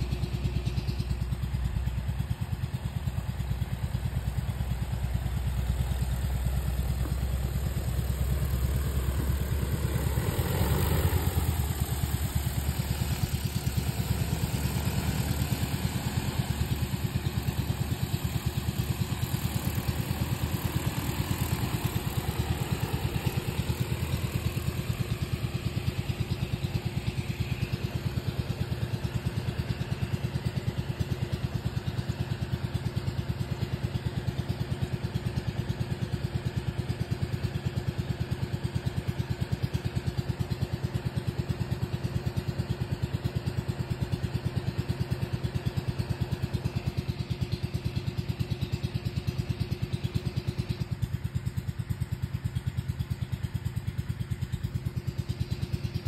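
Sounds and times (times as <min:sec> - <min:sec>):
drone rotors droning: 0:03.2 - 0:33.4.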